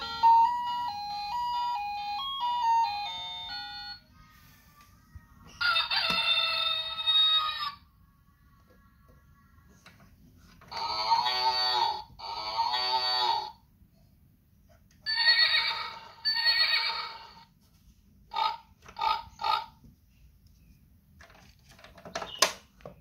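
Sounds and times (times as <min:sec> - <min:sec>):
toy playing farm animal calls: 0:00.0 - 0:04.2, 0:05.6 - 0:07.9, 0:10.7 - 0:13.6, 0:15.1 - 0:17.5, 0:18.3 - 0:19.8.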